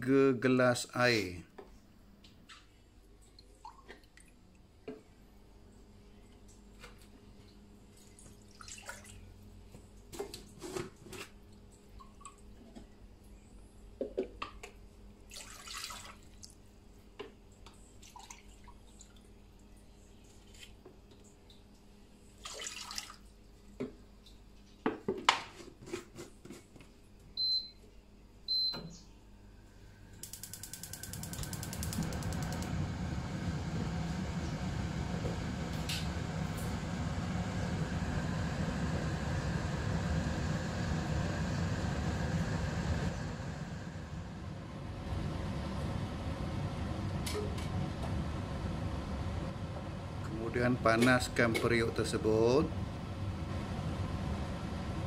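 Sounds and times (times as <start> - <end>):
water pouring and splashing: 8.2 - 9.2, 15.3 - 16.5, 22.4 - 23.2
gas flame hissing: 30.0 - 55.0
gas hob igniter clicking: 30.2 - 32.8.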